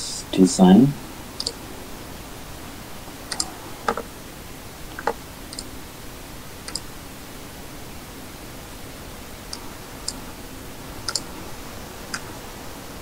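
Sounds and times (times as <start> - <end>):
steady background hiss: 0.0 - 13.0
computer mouse clicks: 1.4 - 1.6, 3.3 - 4.1, 4.9 - 5.7, 6.7 - 6.9, 11.0 - 11.3.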